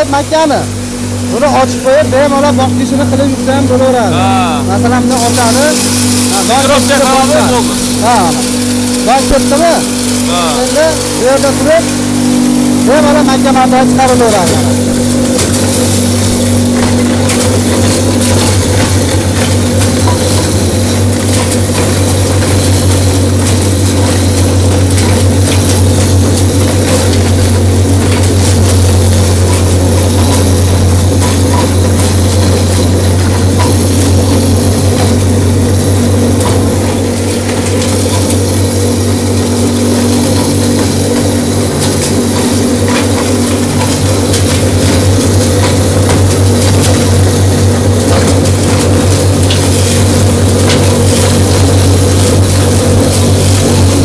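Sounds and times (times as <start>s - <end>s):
grain crusher motor humming: 0.0s - 54.0s
kernels crackling: 0.0s - 54.0s.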